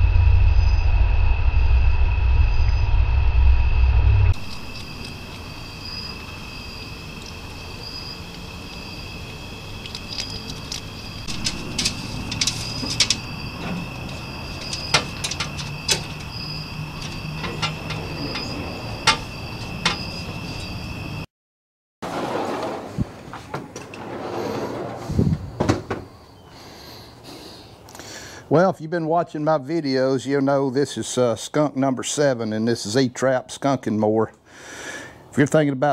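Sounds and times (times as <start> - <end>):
night insects trilling: 4.4 - 21.3
animal clicking and scraping in trap: 8.1 - 20.0.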